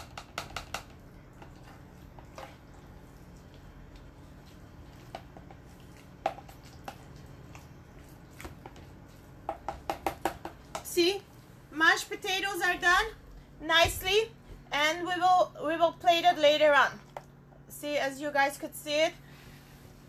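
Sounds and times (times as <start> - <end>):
potato masher knocking dish: 0.0 - 1.5, 9.4 - 11.0.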